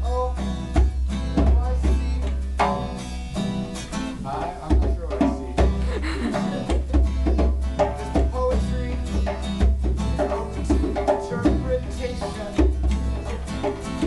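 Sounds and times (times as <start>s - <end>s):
strummed acoustic guitar: 0.0s - 14.0s
upright bass low notes: 0.0s - 14.0s
hand drum beating: 4.6s - 14.0s.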